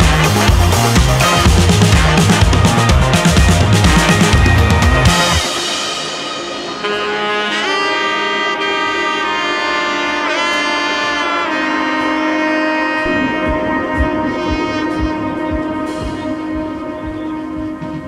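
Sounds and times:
low drum beats: 0:00.0 - 0:06.2, 0:13.0 - 0:18.0
melody of long held notes: 0:00.0 - 0:18.0.

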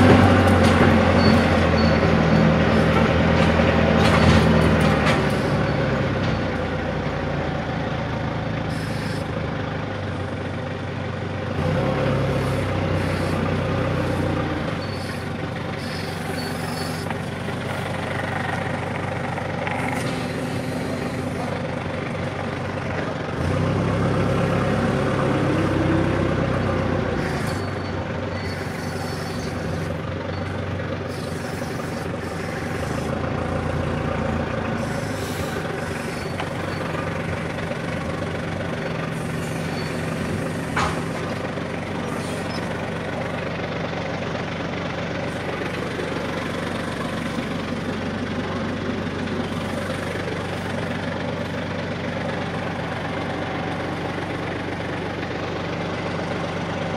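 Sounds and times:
forklift engine running: 0:00.0 - 0:56.9.

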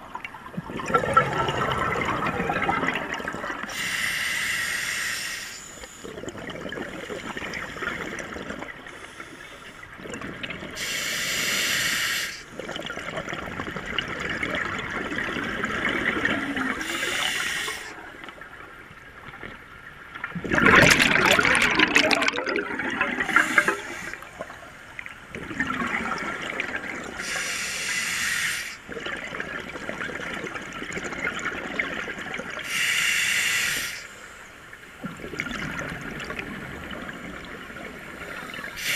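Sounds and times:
exhaled air bubbling: 0:00.0 - 0:38.9
regulator inhale hiss: 0:03.7 - 0:06.2, 0:08.9 - 0:10.0, 0:10.8 - 0:12.5, 0:16.8 - 0:18.0, 0:23.2 - 0:24.4, 0:27.2 - 0:28.8, 0:32.6 - 0:34.5, 0:38.2 - 0:38.9.

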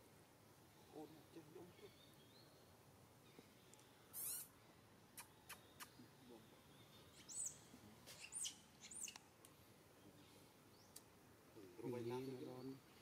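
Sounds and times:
high-pitched animal chirps: 0:04.2 - 0:04.5.

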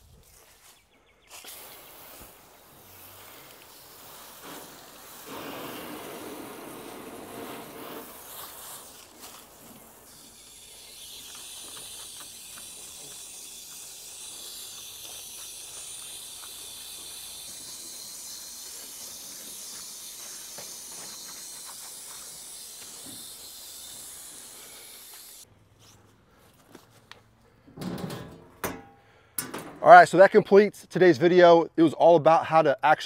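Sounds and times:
hose spraying water: 0:01.3 - 0:25.5.

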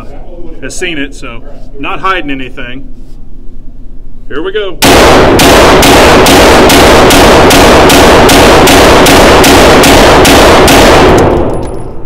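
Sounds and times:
pistol firing rapid shots: 0:04.8 - 0:11.7.

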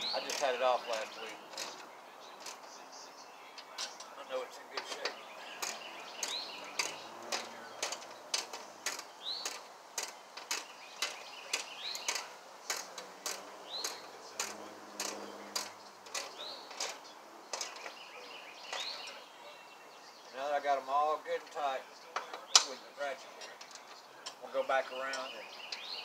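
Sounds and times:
ratchet wrench clicking: 0:05.6 - 0:17.0.

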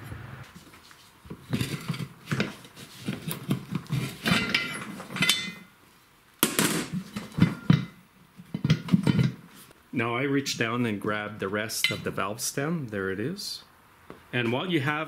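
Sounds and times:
steel bar clanking on wheel rim: 0:04.2 - 0:05.7.

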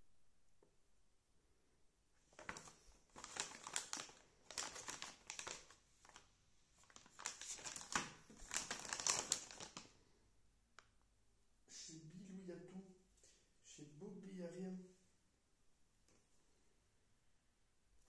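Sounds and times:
plastic bag crinkling: 0:02.3 - 0:10.0.

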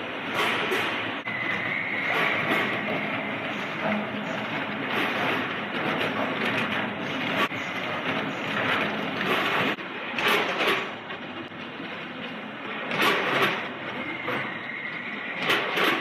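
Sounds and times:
machinery rattling: 0:00.0 - 0:16.0.

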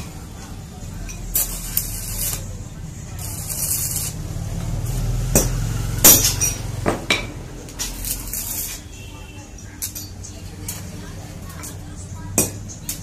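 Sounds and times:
welding arc crackling and hissing: 0:01.3 - 0:05.2, 0:07.6 - 0:09.0.

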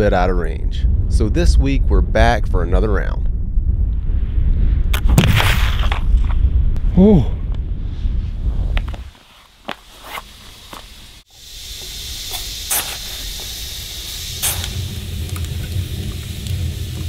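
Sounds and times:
fire burning with hiss and pops: 0:03.8 - 0:17.0.

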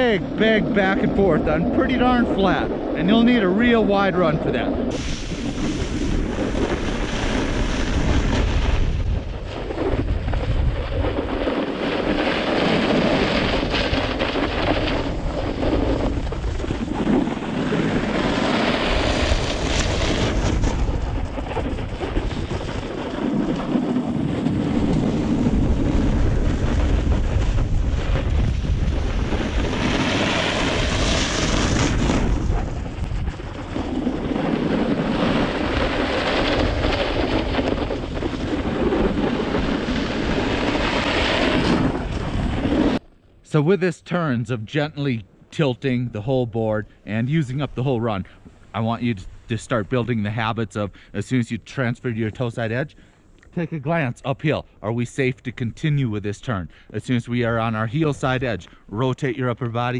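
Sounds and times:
wind rushing over microphone: 0:00.0 - 0:43.1, 0:45.8 - 0:53.0
snowboard edge scraping snow: 0:00.4 - 0:43.0.

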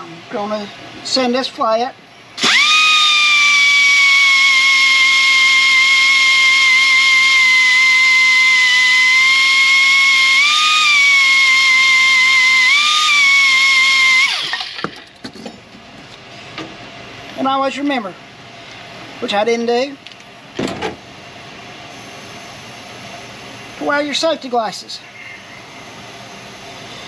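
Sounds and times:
die grinder high whine: 0:02.4 - 0:15.1.

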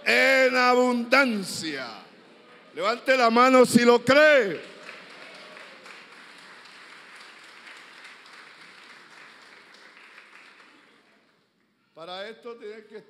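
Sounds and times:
congregation applauding: 0:02.4 - 0:11.5.

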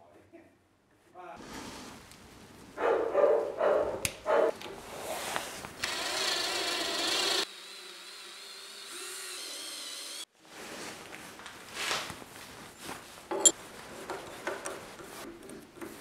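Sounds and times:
cordless drill boring into metal: 0:05.8 - 0:10.3.

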